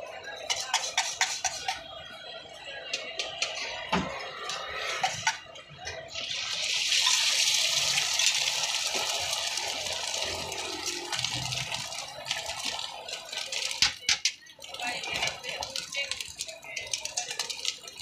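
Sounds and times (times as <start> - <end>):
eggs sizzling on a hot griddle: 0.5 - 2.0, 6.1 - 18.0.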